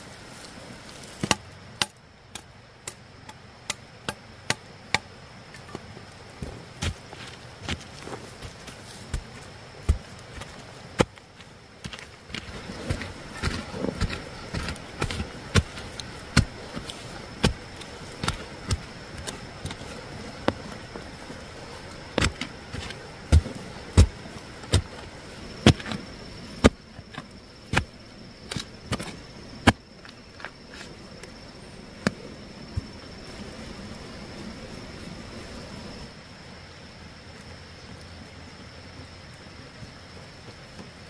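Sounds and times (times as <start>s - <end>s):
digging tool chopping soil: 6.4s - 29.8s.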